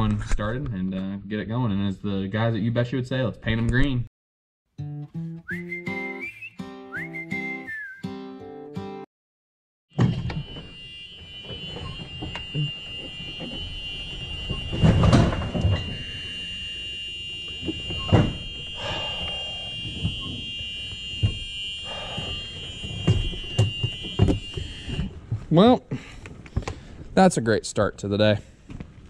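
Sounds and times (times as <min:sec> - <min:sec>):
high-pitched warning buzzer: 0:10.0 - 0:25.1
knocks and thumps: 0:22.8 - 0:25.5.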